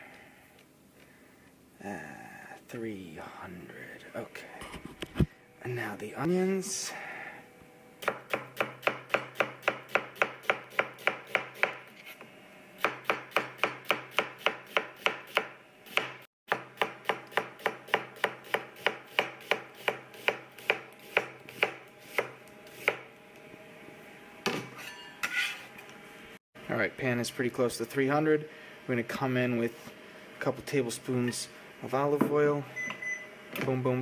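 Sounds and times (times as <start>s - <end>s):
faint steady hum: 0.0s - 24.8s, 25.7s - 34.0s
knife chopping on wooden board: 8.0s - 11.8s, 12.8s - 23.0s.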